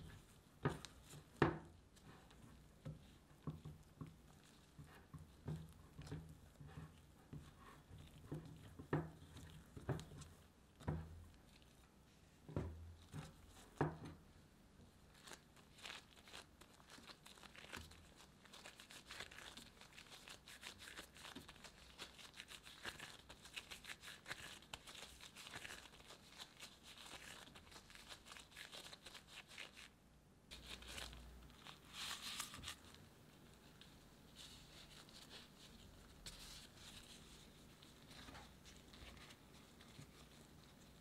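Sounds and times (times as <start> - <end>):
dough being kneaded: 0.0 - 41.0.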